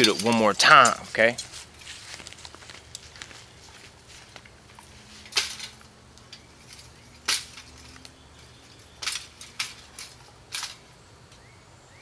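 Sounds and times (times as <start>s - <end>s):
sheet metal clattering: 0.0s - 1.0s.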